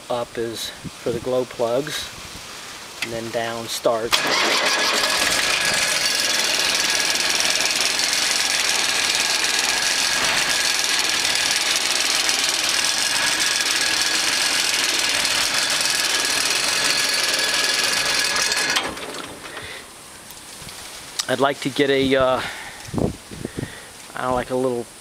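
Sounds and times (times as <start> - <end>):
diesel engine running: 4.1 - 20.3.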